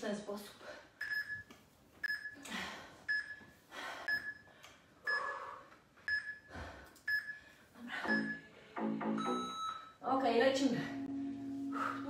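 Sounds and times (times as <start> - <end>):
short high electronic beeps: 9.2 - 10.0.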